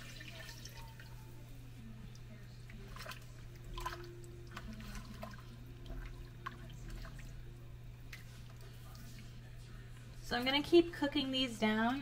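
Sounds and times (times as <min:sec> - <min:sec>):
broth splashing into a pan: 0:00.0 - 0:01.2
range hood fan humming: 0:00.0 - 0:12.0.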